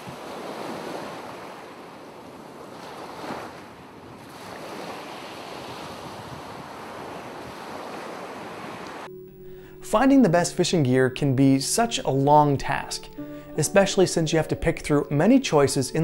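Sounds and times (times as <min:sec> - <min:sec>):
waves washing in: 0:00.0 - 0:09.1.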